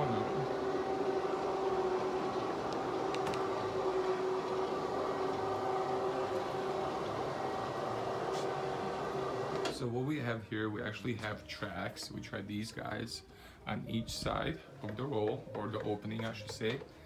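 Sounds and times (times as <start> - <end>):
motorized screens humming: 0.0 - 9.8.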